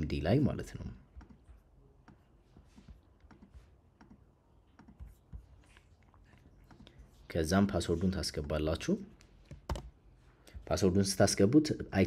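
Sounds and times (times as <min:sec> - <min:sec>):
mouse and keyboard clicking: 0:04.8 - 0:05.2.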